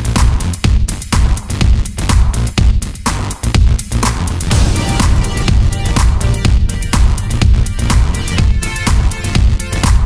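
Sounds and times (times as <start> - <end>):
electronic dance music: 4.4 - 10.0.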